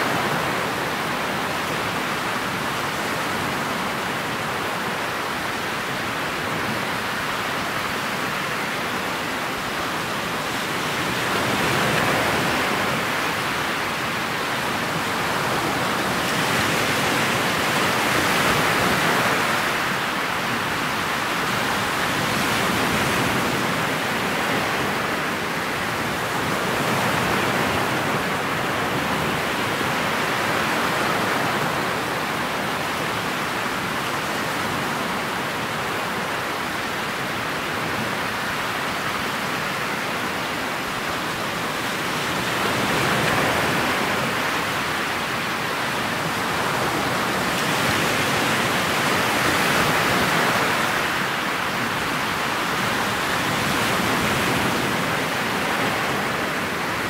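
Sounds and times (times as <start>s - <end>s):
wind and water rushing at boat bow: 0.0s - 57.0s.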